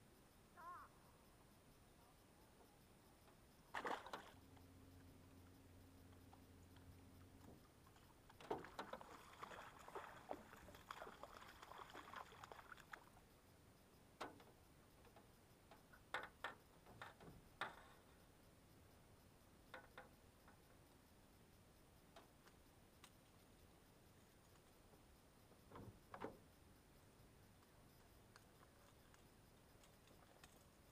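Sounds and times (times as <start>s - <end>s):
fish splashing and thrashing: 3.8s - 4.4s, 8.4s - 13.1s.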